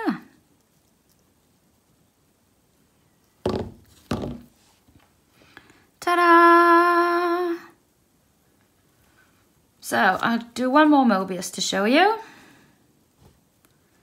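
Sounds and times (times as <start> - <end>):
thumps on a table: 3.4 - 4.5.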